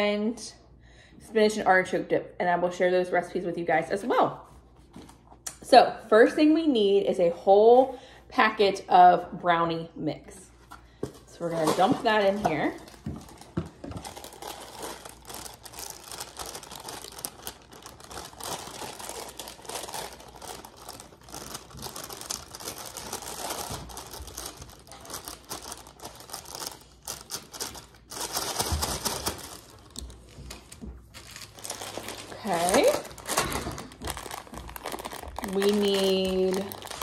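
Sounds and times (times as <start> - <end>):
plastic bag crinkling: 11.2 - 37.0.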